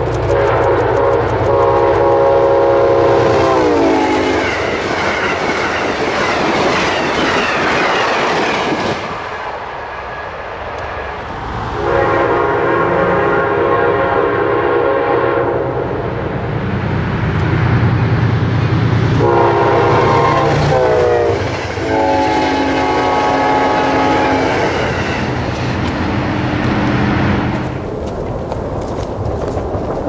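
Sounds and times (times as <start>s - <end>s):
train cars rumbling on rails: 0.0s - 30.0s
locomotive horn blasts: 0.2s - 4.5s, 11.8s - 15.8s, 19.2s - 24.8s.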